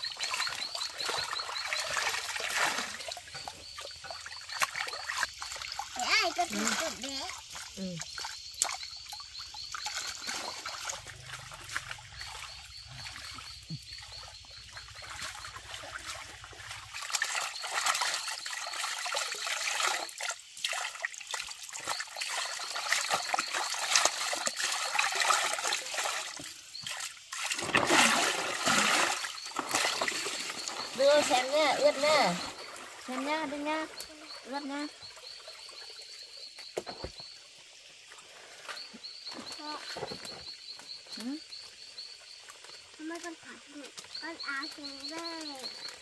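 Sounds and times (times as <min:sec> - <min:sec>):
water splashing: 0:00.0 - 0:37.4, 0:38.0 - 0:46.0
water trickling into a basin: 0:00.0 - 0:46.0.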